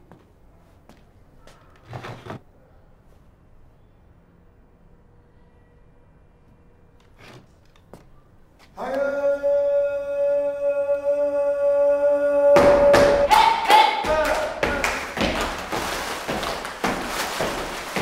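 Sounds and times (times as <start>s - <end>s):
voice singing held note: 8.8s - 14.6s.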